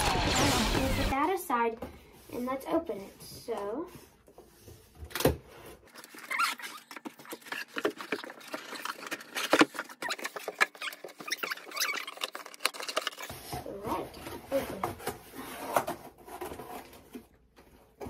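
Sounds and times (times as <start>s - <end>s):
scratchy clicks and crinkles: 5.8s - 13.4s.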